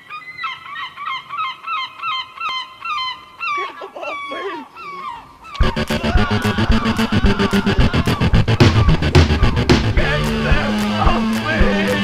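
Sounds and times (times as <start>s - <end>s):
gulls calling: 1.9s - 12.0s
distorted grindcore music: 5.6s - 12.0s.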